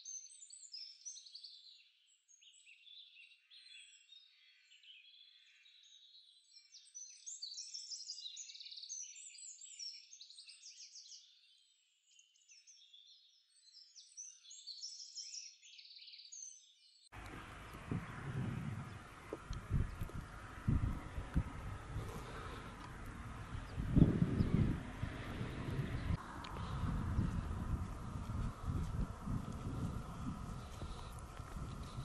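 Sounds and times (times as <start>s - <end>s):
songbirds chirping and trilling: 0.1s - 32.0s
wind rumbling on microphone: 17.2s - 32.0s.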